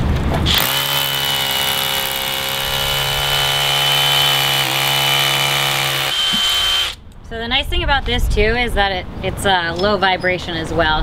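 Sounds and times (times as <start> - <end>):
rotary hammer drilling into concrete: 0.5 - 7.0.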